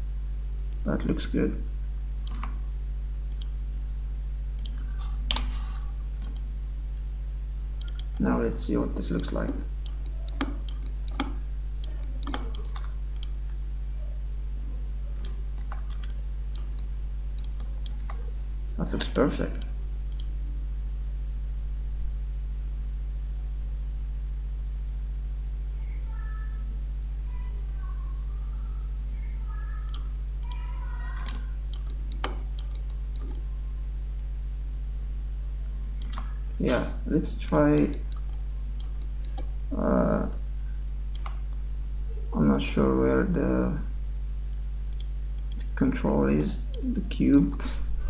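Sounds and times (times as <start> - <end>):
steady low hum: 0.0 - 48.0
computer mouse clicks: 2.2 - 2.6, 3.3 - 3.6, 4.6 - 5.6, 7.8 - 8.2, 9.4 - 13.5, 15.2 - 18.2, 31.2 - 33.5, 36.0 - 36.3, 37.8 - 39.5, 41.1 - 41.4, 44.9 - 45.8
mouse and keyboard clicks: 9.4 - 13.4, 31.2 - 33.4.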